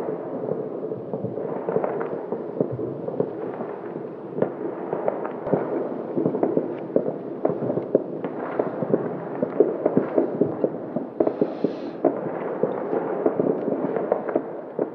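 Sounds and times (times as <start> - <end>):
fireworks and firecrackers banging: 0.0 - 14.9
brief hiss: 11.2 - 12.0.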